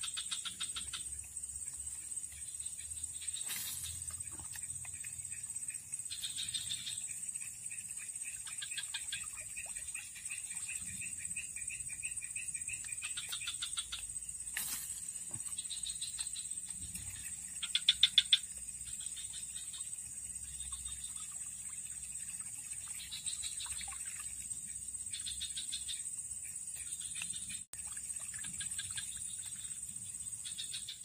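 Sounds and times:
frogs calling: 0:00.0 - 0:31.0
high-pitched insect whine: 0:00.1 - 0:09.4.

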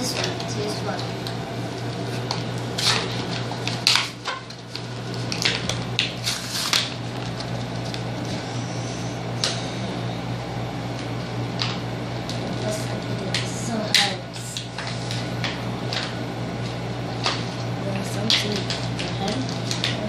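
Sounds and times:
steady low hum: 0:00.0 - 0:20.0
packaging crinkling: 0:01.7 - 0:08.4.

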